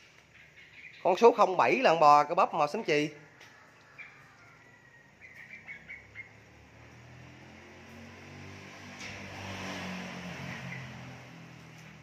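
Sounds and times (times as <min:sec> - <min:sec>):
bird chirps: 0:00.0 - 0:02.0, 0:03.5 - 0:06.6
passing vehicle engine hum: 0:03.2 - 0:12.0.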